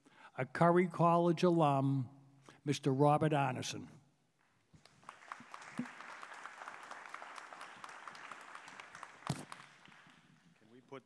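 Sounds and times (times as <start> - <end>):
audience applauding: 4.8 - 10.7.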